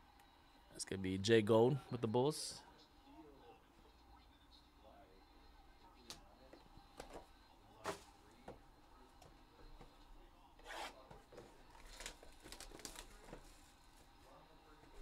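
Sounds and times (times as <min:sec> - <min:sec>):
packaging rustling: 0:11.7 - 0:13.4.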